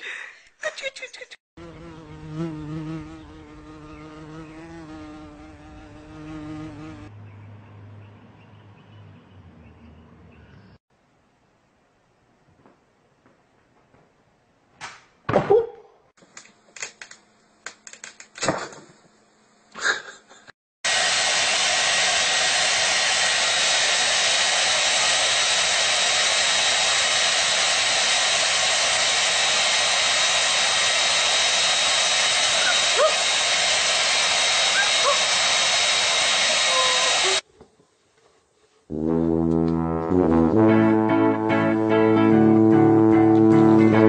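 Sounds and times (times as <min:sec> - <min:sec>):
hair dryer running: 0:20.9 - 0:37.4.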